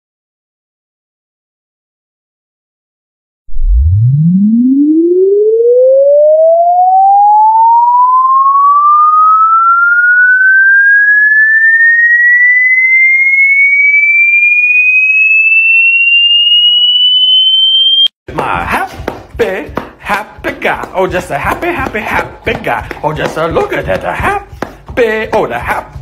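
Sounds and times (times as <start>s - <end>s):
rising electronic sweep tone: 3.5s - 18.2s.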